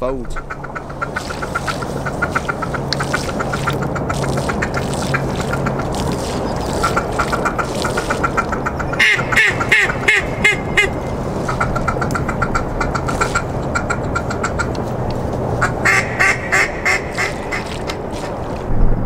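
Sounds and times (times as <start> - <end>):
ducks quacking: 0.0 - 18.3.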